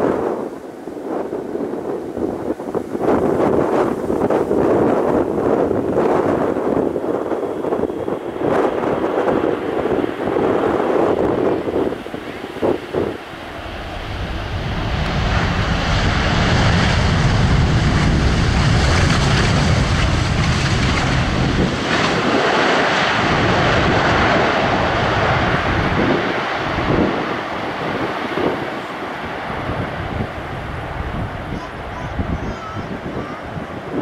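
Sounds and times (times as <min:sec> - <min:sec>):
jet engines rumbling: 0:00.0 - 0:34.0
wind buffeting microphone: 0:00.0 - 0:34.0.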